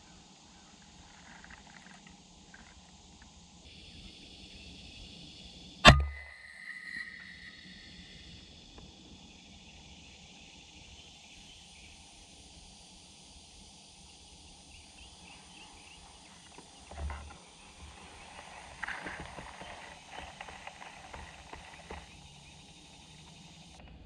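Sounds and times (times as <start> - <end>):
soft high chirping: 5.9 - 8.6
scratchy rustling: 17.0 - 22.2.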